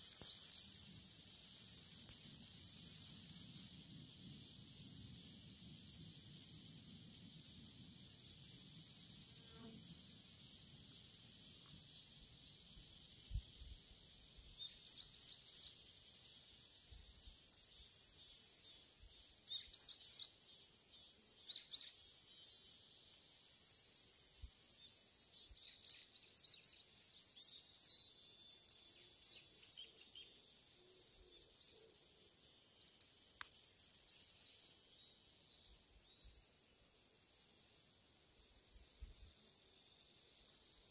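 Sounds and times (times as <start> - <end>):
insects singing: 0.0 - 40.9.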